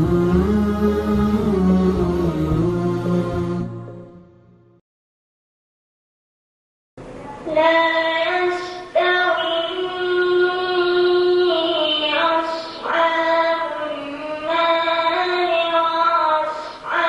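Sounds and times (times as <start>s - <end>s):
boy chanting recitation: 7.2s - 17.0s.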